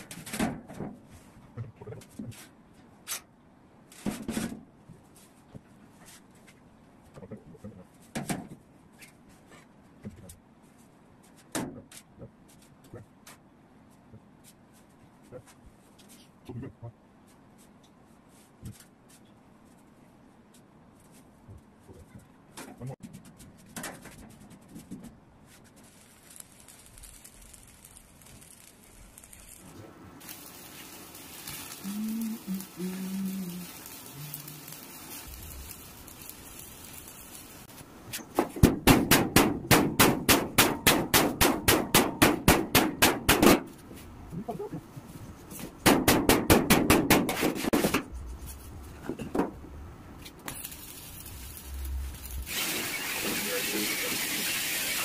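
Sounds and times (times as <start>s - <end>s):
arc welding cracks: 25.8s - 43.8s, 50.2s - 55.0s.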